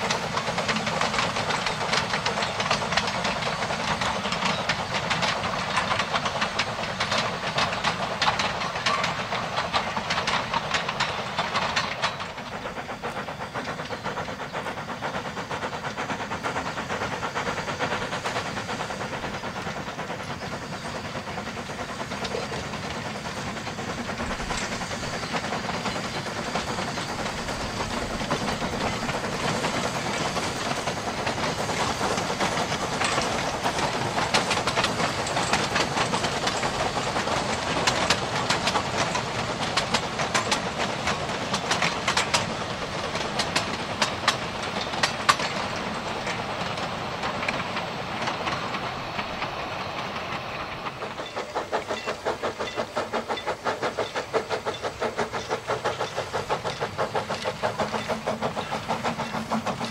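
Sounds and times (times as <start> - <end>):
steam locomotive hissing: 0.0 - 59.9
wagons clicking over rails: 0.0 - 59.9.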